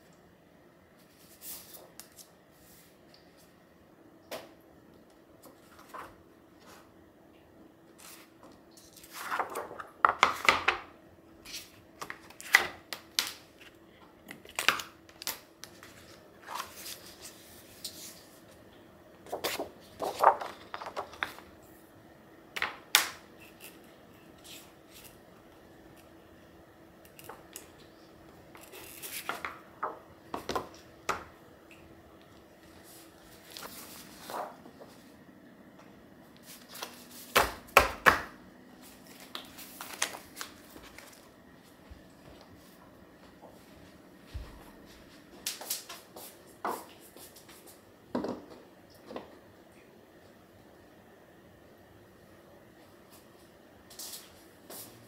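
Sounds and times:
faint steady hum: 0:00.0 - 0:55.0
paper rustling and sliding on wood: 0:08.9 - 0:10.6, 0:19.3 - 0:21.5, 0:32.8 - 0:35.0.

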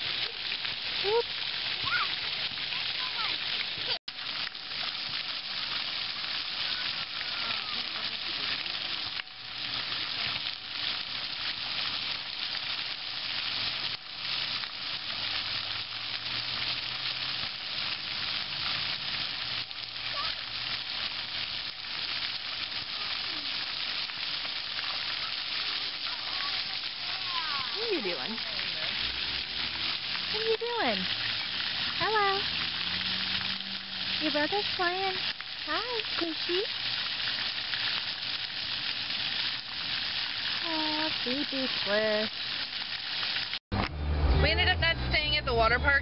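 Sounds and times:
fountain jets splattering on pavement: 0:00.0 - 0:43.9, 0:44.5 - 0:46.0.

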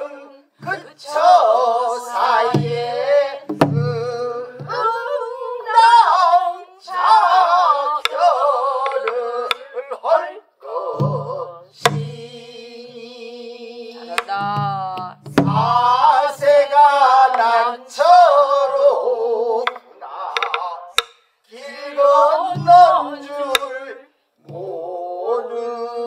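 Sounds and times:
group of voices singing: 0:00.0 - 0:26.0
stick strokes on drum: 0:20.4 - 0:21.2.

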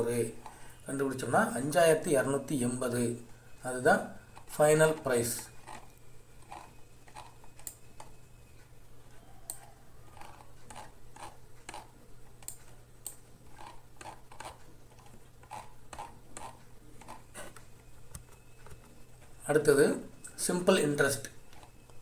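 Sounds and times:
low steady hum: 0:00.0 - 0:22.0
computer mouse clicks: 0:05.7 - 0:08.1, 0:09.4 - 0:18.9.

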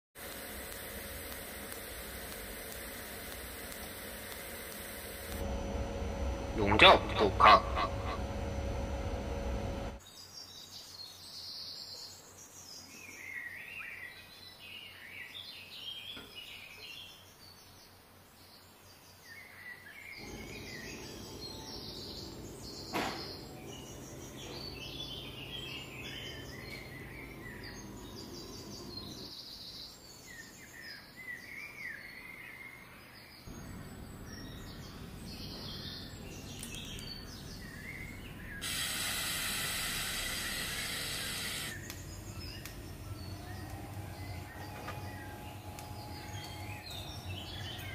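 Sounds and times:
loud steady hiss: 0:00.2 - 0:10.0, 0:33.5 - 0:47.4
small birds chirping: 0:00.3 - 0:05.4, 0:10.0 - 0:47.9.

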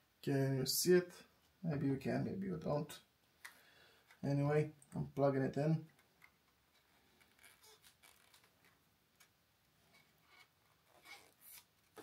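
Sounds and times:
hands fitting ribbon cable: 0:05.8 - 0:12.0.

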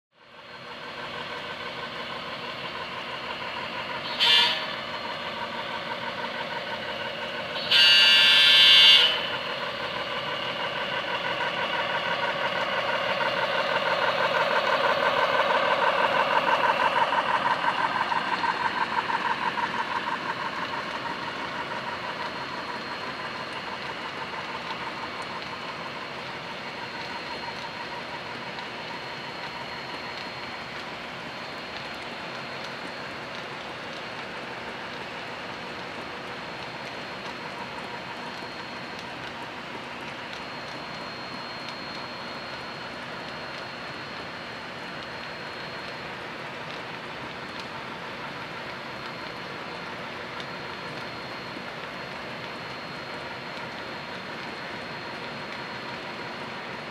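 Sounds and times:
model locomotive engine sound: 0:00.2 - 0:56.9
wheels clicking on track: 0:00.4 - 0:56.9
locomotive horn: 0:04.1 - 0:04.8, 0:07.6 - 0:09.4.

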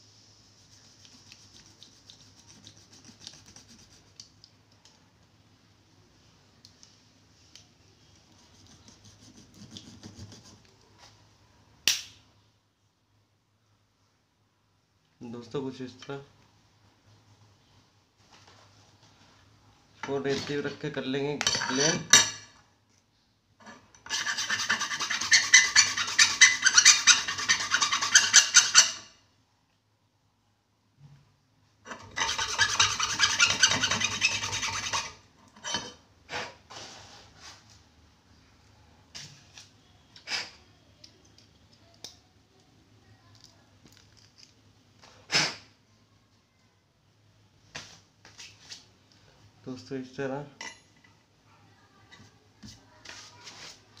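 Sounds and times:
pen barrel rasping on steel file: 0:08.4 - 0:10.6, 0:24.0 - 0:29.1, 0:31.9 - 0:35.2
blade scraping plastic tube: 0:24.1 - 0:29.1, 0:31.9 - 0:35.2.

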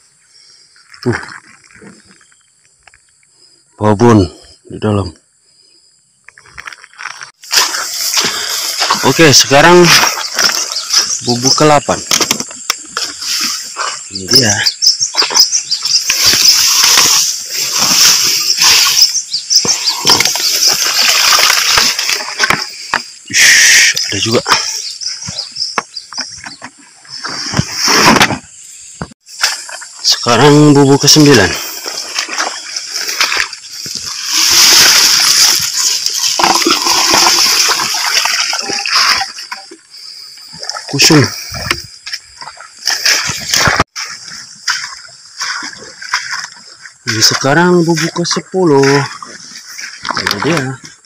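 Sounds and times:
high insect drone: 0:00.0 - 0:48.0
wet grass rustling: 0:06.4 - 0:23.2, 0:24.0 - 0:51.0
water splashing: 0:07.4 - 0:11.5, 0:15.1 - 0:23.0, 0:31.2 - 0:50.7.

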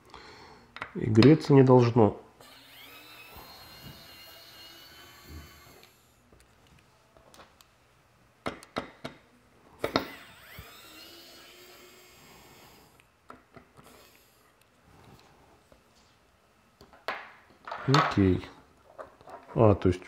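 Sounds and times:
electric screwdriver whirring: 0:02.4 - 0:06.1, 0:09.8 - 0:13.0.

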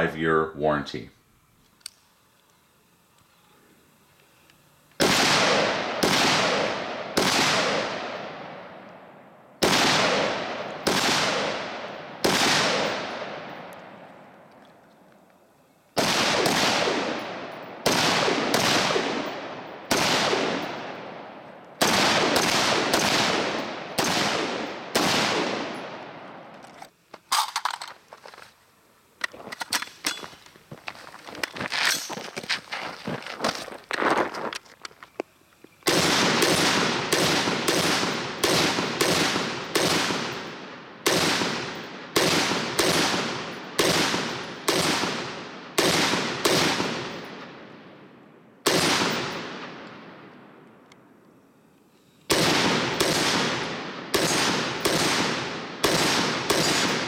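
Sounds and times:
rifle shots with echo: 0:05.0 - 0:14.4, 0:16.0 - 0:26.6, 0:35.9 - 0:50.6, 0:52.3 - 0:57.0
handling clicks and rustles: 0:26.5 - 0:35.9.

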